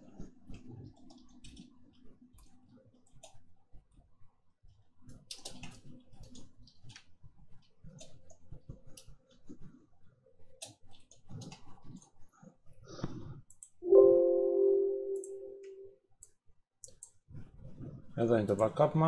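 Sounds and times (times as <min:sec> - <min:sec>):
typing on computer keyboard: 0:00.5 - 0:03.4, 0:05.0 - 0:09.2, 0:10.6 - 0:12.2.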